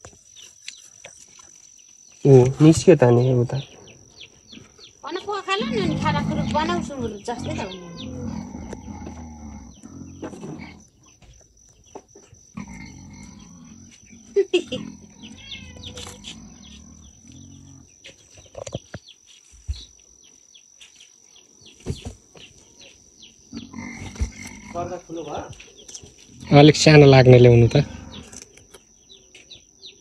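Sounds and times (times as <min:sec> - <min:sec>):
pigs grunting and squealing: 0:05.6 - 0:10.9, 0:12.5 - 0:17.9, 0:23.5 - 0:25.1, 0:26.3 - 0:28.5.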